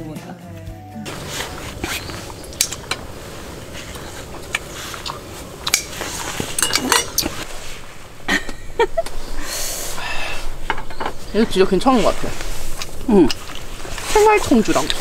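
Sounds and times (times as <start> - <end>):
tongs and chopsticks clinking on dishes: 6.6 - 7.4.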